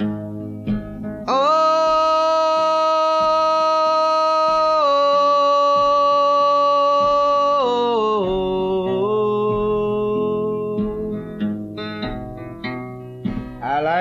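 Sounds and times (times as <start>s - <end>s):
person singing long note: 1.3s - 11.1s
quiet musical accompaniment: 7.8s - 14.0s.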